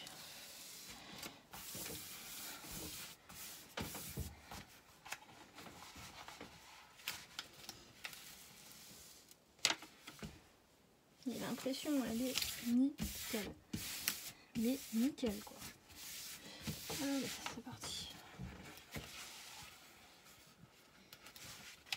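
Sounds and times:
plastic film rustling: 0:11.3 - 0:15.8.

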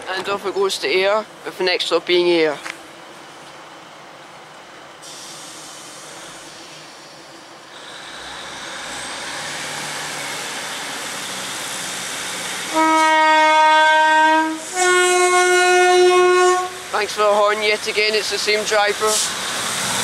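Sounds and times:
diesel train rumble: 0:00.0 - 0:20.0
train horn: 0:12.7 - 0:16.9.

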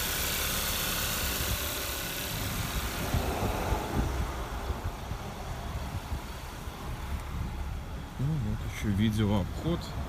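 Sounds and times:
car engine idling: 0:00.0 - 0:10.0
wind buffeting microphone: 0:01.2 - 0:08.8.

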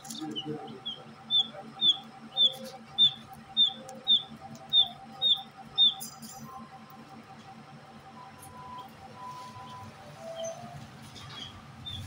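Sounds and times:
parrot chirping: 0:00.4 - 0:06.2.

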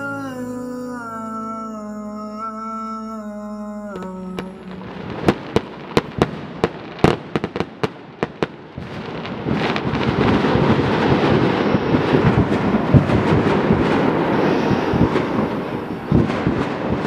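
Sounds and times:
song note: 0:00.0 - 0:06.3
fireworks crackling: 0:03.8 - 0:17.0
fireworks bangs and pops: 0:04.0 - 0:17.0.

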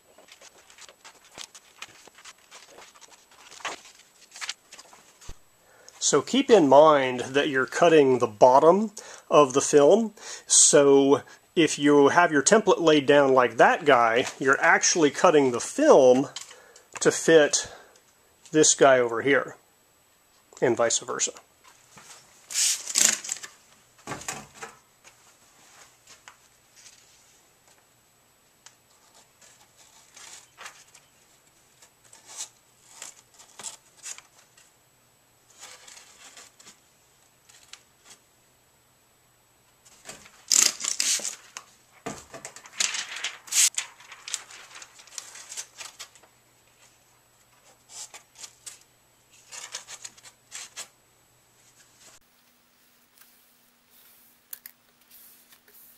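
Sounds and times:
plastic film rustling and crinkling: 0:00.1 - 0:05.4, 0:40.0 - 0:46.3.

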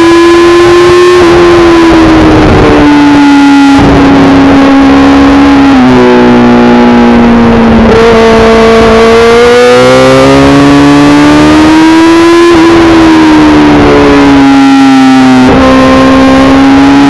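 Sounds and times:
motorcycle engine at high revs: 0:00.0 - 0:17.0.

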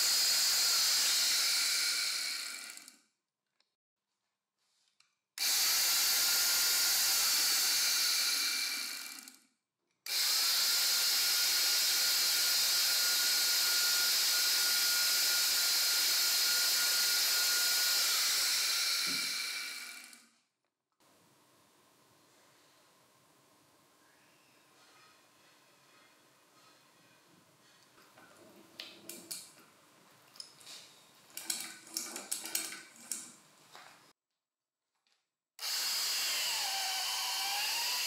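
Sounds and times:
electric drill motor whine: 0:00.0 - 0:02.9, 0:05.4 - 0:09.4, 0:10.1 - 0:20.2, 0:35.6 - 0:38.0.

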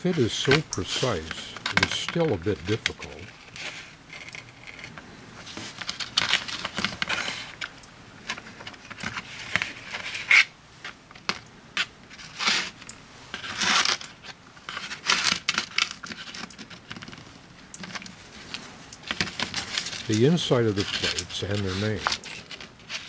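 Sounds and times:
shell plates scraping on cardboard: 0:11.8 - 0:17.2.

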